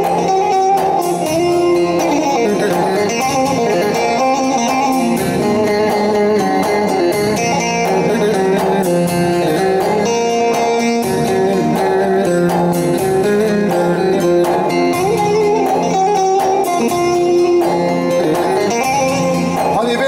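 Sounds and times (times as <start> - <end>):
electronic keyboard accompaniment: 0.0 - 20.0
plucked lute melody: 0.0 - 20.0.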